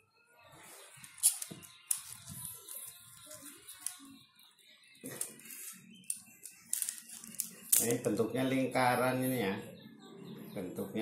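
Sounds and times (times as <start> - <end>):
plastic track pieces clicking: 6.1 - 7.9.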